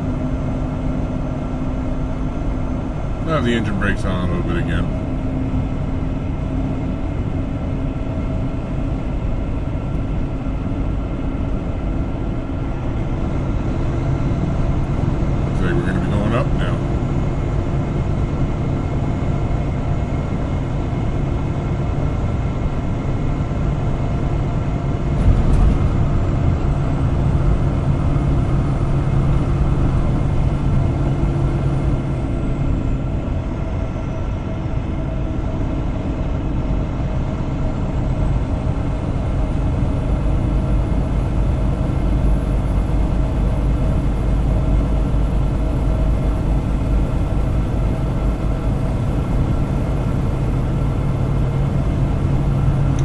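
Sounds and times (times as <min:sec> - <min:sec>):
road and tyre rumble: 0:00.0 - 0:53.0
truck diesel engine running: 0:00.0 - 0:53.0
brief thump: 0:25.2 - 0:26.0.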